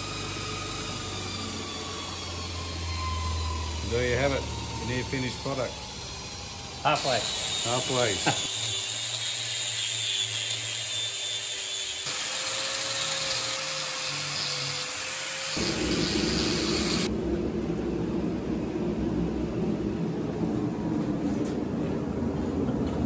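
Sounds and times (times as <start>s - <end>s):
angle grinder sanding metal: 6.9s - 17.1s
gas forge burner rumbling: 15.6s - 23.0s.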